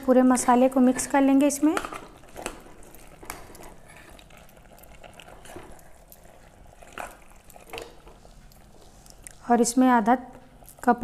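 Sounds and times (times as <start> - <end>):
wet squelching of stirring: 0.4 - 11.0.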